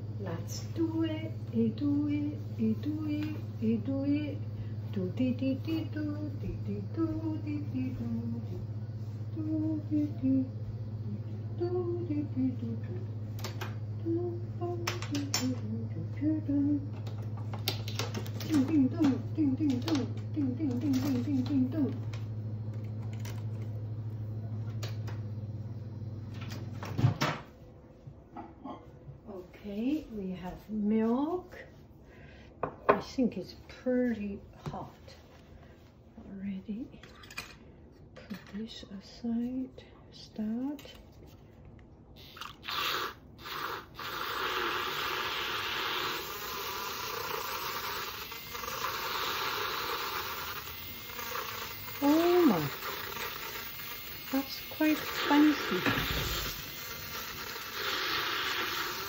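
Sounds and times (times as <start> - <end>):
milk frother whirring: 0.0 - 26.9, 42.2 - 59.0
kitchen appliance humming: 0.0 - 27.6, 42.2 - 59.0.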